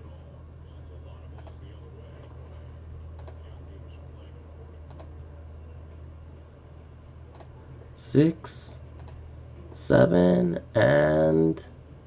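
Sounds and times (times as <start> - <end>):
steady low hum: 0.0 - 12.0
computer mouse clicks: 1.4 - 1.6, 3.2 - 3.4, 4.9 - 5.1, 7.3 - 7.5, 9.0 - 9.2.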